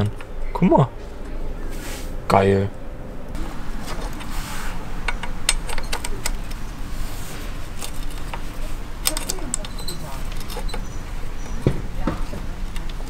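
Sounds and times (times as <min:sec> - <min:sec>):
low background rumble: 0:00.0 - 0:13.0
metallic clicks and clinks: 0:09.0 - 0:11.6.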